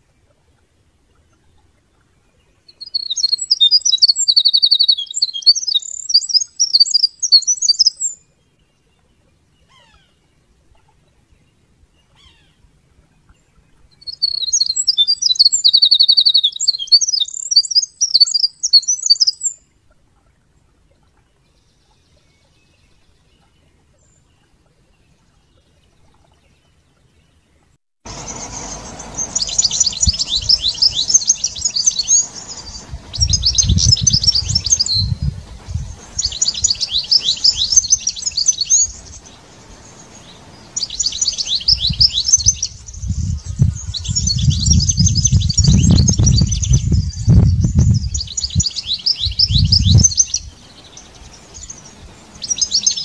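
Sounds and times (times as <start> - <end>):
wren singing: 2.7 - 8.2, 13.9 - 19.6, 28.1 - 53.0.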